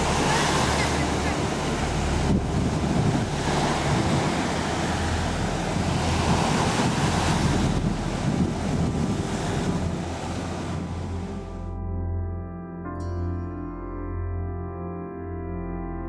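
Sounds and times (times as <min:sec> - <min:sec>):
small waves breaking on beach: 0:00.0 - 0:11.4
wind buffeting microphone: 0:00.0 - 0:11.6.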